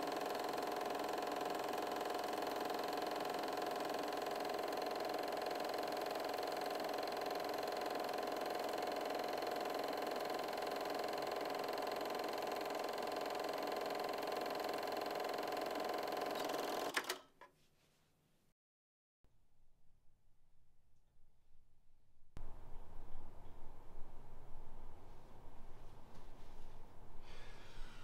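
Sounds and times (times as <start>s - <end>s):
film projector whirring: 0.0s - 17.2s.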